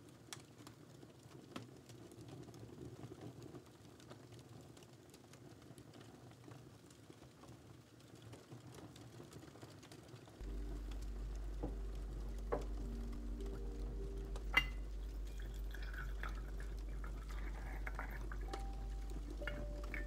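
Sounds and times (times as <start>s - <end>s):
faint ticks and rustles: 0.0s - 20.0s
low hum with held tones: 10.4s - 20.0s.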